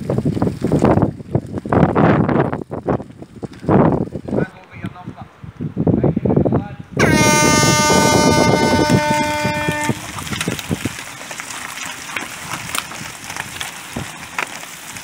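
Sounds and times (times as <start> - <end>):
air horn blast: 7.0 - 10.2.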